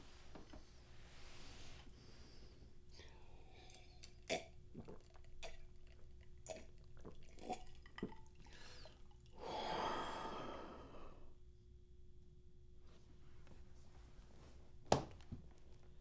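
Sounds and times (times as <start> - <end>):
person gulping water: 3.6 - 9.4
breathy exhale: 8.5 - 11.3.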